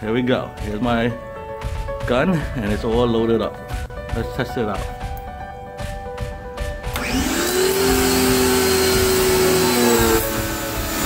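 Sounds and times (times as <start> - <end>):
pressure washer motor: 6.9 - 11.0.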